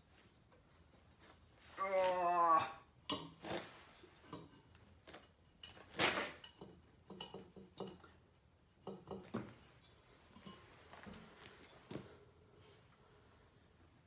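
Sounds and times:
light metal clicks and knocks: 0:04.3 - 0:08.2, 0:08.8 - 0:10.7.

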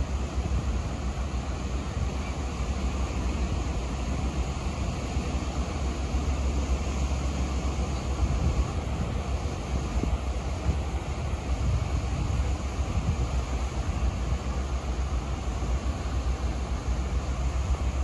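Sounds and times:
surf washing up beach: 0:00.0 - 0:18.0
wind rumble on microphone: 0:07.0 - 0:16.4.

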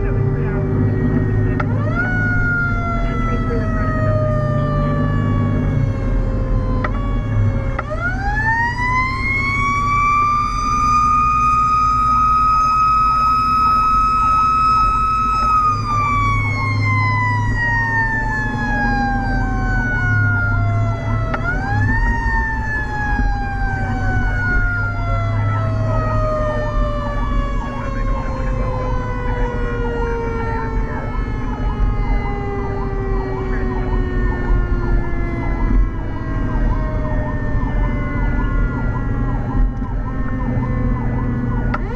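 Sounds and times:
fire engine siren wailing: 0:00.0 - 0:41.9
truck engine rumble: 0:00.0 - 0:41.9
second siren tone cycling: 0:00.1 - 0:41.9.

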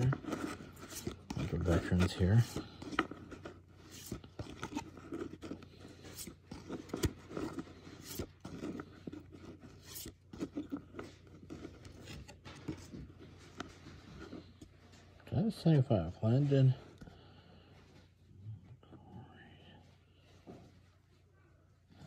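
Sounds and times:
cards clicking and rustling: 0:00.0 - 0:14.5
cards sliding and scraping: 0:00.0 - 0:14.8.

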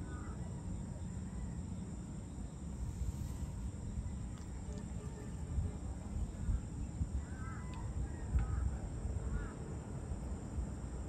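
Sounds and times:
steady low rumble: 0:00.0 - 0:11.0
bird calling: 0:07.2 - 0:09.6.

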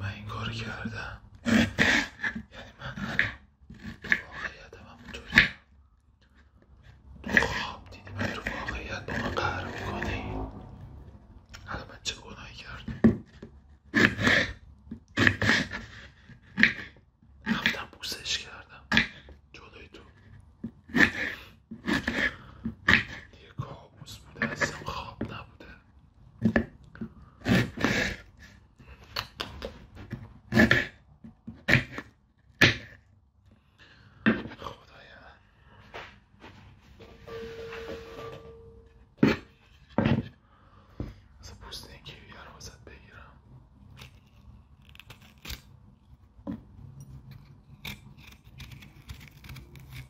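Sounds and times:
fruit being cut: 0:01.4 - 0:05.6, 0:07.2 - 0:10.8, 0:12.9 - 0:17.9, 0:20.7 - 0:23.3, 0:26.4 - 0:29.8, 0:30.4 - 0:33.0, 0:43.9 - 0:45.8, 0:47.2 - 0:50.0.

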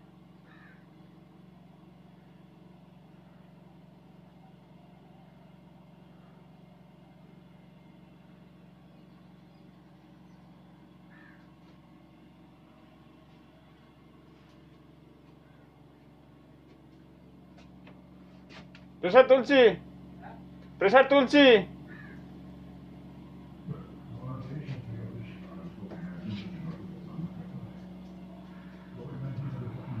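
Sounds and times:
train cab low hum: 0:00.0 - 0:30.0
short bird calls: 0:00.4 - 0:01.0, 0:08.8 - 0:11.6, 0:21.9 - 0:22.3.

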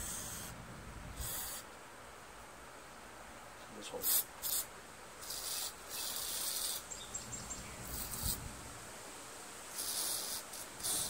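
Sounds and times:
aerosol spray hissing bursts: 0:01.2 - 0:01.7, 0:04.0 - 0:06.8, 0:09.7 - 0:11.0.

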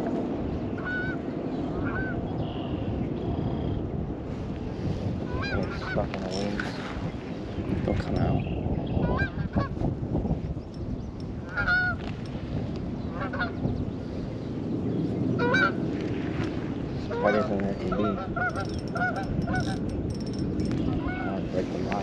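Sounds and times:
geese honking: 0:17.1 - 0:19.8.

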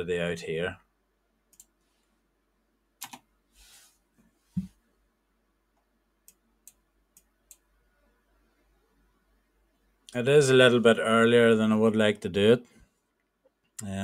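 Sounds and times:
computer mouse clicks: 0:01.5 - 0:01.8, 0:03.0 - 0:03.3.

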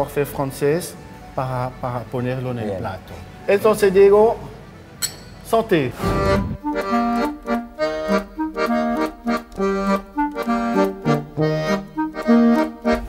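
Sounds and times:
lively accordion tune: 0:05.8 - 0:13.0.

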